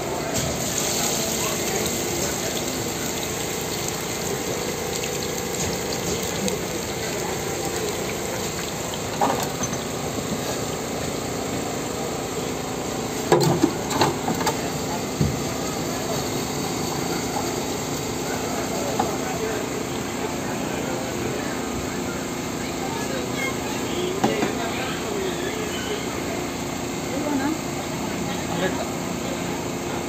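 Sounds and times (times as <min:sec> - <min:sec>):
potato sizzling in oil: 0:00.6 - 0:11.0.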